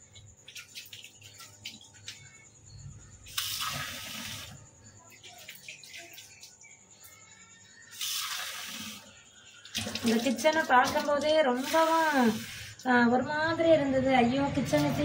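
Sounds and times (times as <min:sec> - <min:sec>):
tap water splashing into tumbler: 0:09.6 - 0:11.3.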